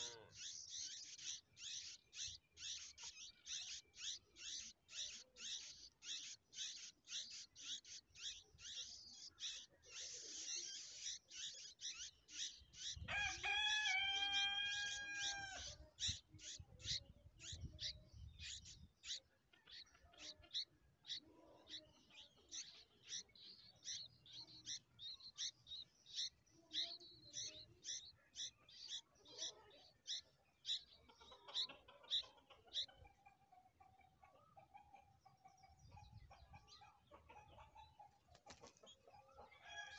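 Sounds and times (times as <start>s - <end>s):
chicks cheeping: 0.0s - 39.9s
rooster crowing: 13.1s - 15.7s, 39.5s - 39.9s.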